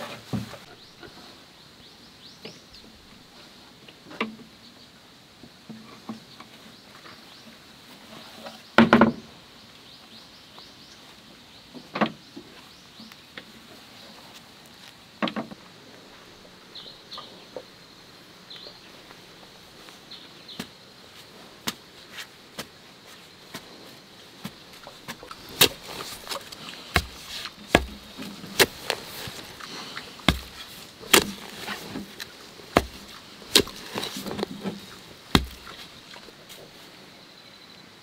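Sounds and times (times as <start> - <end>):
wooden pole thudding into soil: 24.4 - 36.3.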